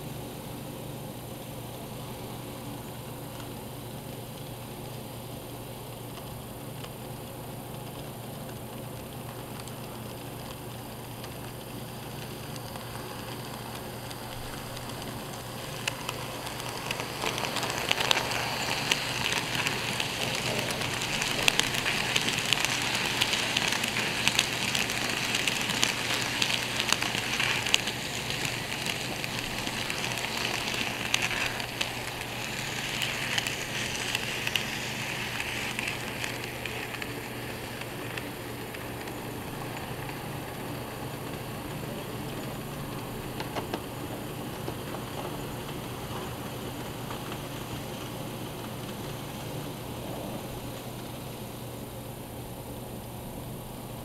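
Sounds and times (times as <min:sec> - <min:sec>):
steady low hum: 0:00.0 - 0:54.0
model train wheels rattling on track: 0:11.3 - 0:51.0.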